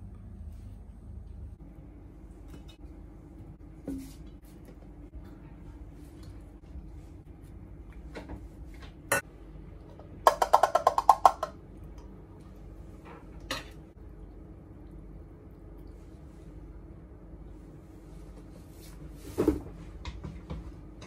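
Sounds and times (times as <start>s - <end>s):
can knocking on metal pot: 10.3s - 11.6s.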